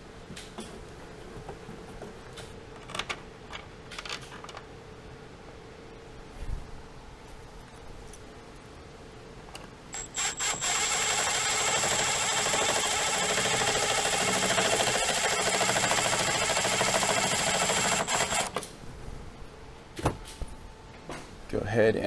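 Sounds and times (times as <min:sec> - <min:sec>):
cordless drill high whine: 0:10.0 - 0:18.5.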